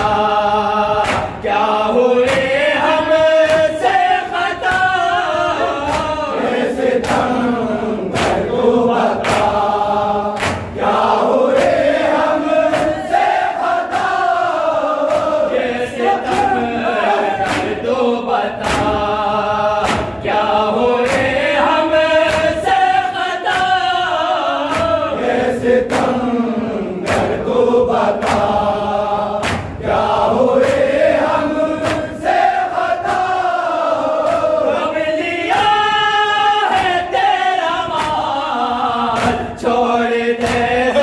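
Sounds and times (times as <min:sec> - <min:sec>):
men chanting a lament: 0:00.0 - 0:41.0
hand slaps on chest: 0:01.0 - 0:01.4, 0:02.2 - 0:04.0, 0:05.8 - 0:06.4, 0:07.0 - 0:07.4, 0:08.1 - 0:08.6, 0:09.2 - 0:09.6, 0:10.4 - 0:10.8, 0:11.5 - 0:14.2, 0:15.0 - 0:15.4, 0:17.4 - 0:17.8, 0:18.6 - 0:19.1, 0:19.8 - 0:20.4, 0:21.0 - 0:21.5, 0:22.2 - 0:22.8, 0:23.4 - 0:23.9, 0:24.6 - 0:25.0, 0:25.8 - 0:26.2, 0:27.0 - 0:27.4, 0:28.2 - 0:28.6, 0:29.4 - 0:29.8, 0:31.8 - 0:32.2, 0:34.2 - 0:34.5, 0:37.9 - 0:38.3, 0:39.1 - 0:39.5, 0:40.4 - 0:40.7.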